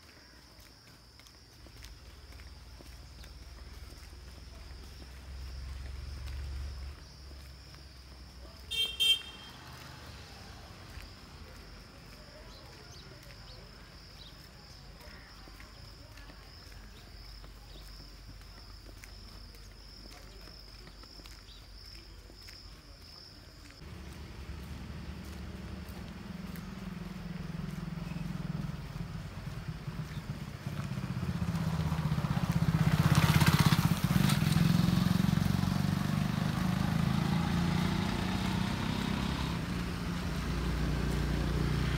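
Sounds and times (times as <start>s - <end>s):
vehicle horn toots: 8.7s - 9.9s
small motorcycle engine running: 23.8s - 41.9s.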